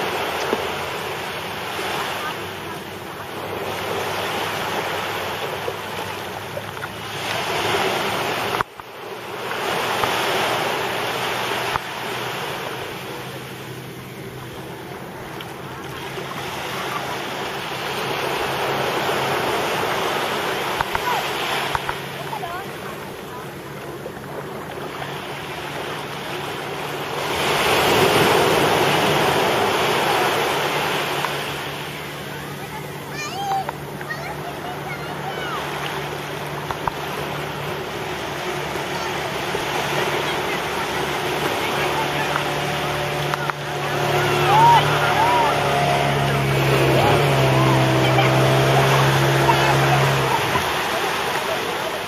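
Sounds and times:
motorboat engine hum: 0:00.0 - 0:52.0
sea surf washing on beach: 0:00.0 - 0:52.0
water rushing: 0:00.0 - 0:52.0.

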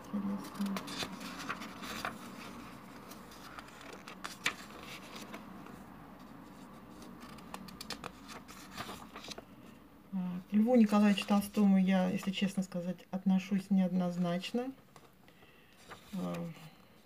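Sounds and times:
faint room hum: 0:00.0 - 0:17.0
book pages rustling: 0:00.1 - 0:09.8, 0:10.7 - 0:12.4, 0:14.9 - 0:16.7.

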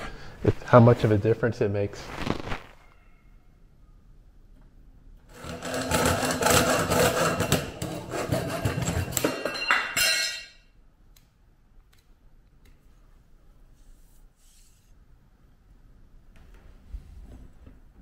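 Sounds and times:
hacksaw cutting metal: 0:05.3 - 0:09.2.

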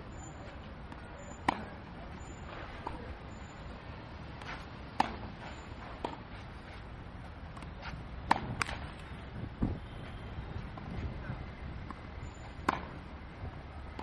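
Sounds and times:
tennis ball pops: 0:07.6 - 0:08.8.

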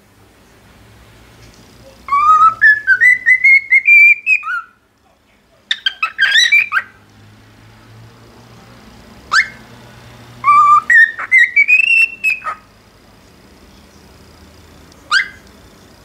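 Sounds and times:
bird warbled chirps: 0:01.8 - 0:04.8, 0:05.7 - 0:07.0, 0:09.3 - 0:09.6, 0:10.4 - 0:12.8, 0:15.0 - 0:15.4
cockatiel whistling: 0:01.9 - 0:04.8, 0:05.7 - 0:07.0, 0:09.3 - 0:09.6, 0:10.4 - 0:12.7, 0:15.1 - 0:15.4.

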